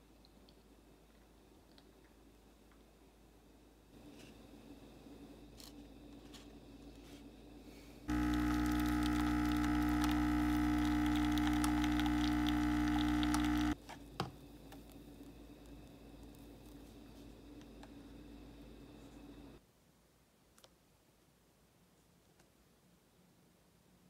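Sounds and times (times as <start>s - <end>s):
espresso machine pump buzzing: 8.1s - 13.8s.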